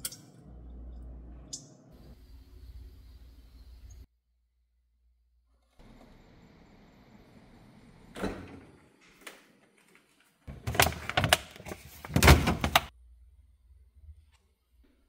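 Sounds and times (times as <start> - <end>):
refrigerator shelf knocking and rattling: 10.5 - 12.9.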